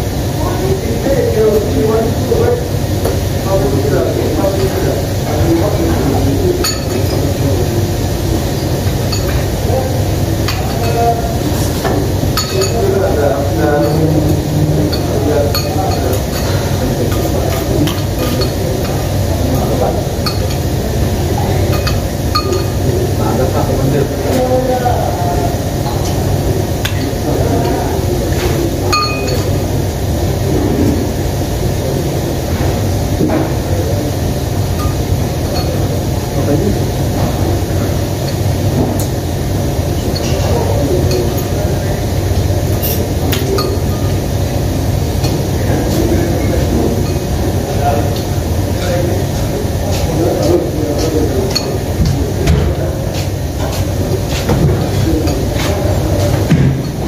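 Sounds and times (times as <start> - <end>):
steady low hum: 0.0 - 57.0
spoons clinking on bowls: 6.6 - 7.3, 9.1 - 9.5, 12.4 - 13.0, 13.6 - 20.7, 21.6 - 22.9, 28.8 - 29.6, 40.0 - 41.5, 42.7 - 44.2.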